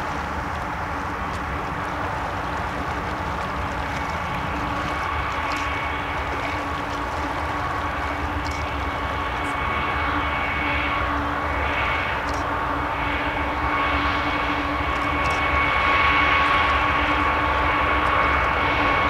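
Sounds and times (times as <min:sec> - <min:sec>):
river rushing: 0:00.0 - 0:12.5
diesel locomotives droning: 0:00.0 - 0:19.0
thin whine: 0:00.0 - 0:19.0.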